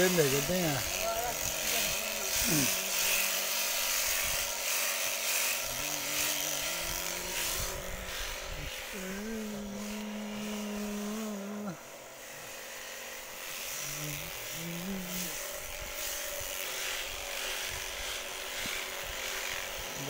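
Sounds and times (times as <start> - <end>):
wind rumbling on microphone: 7.5 - 9.1.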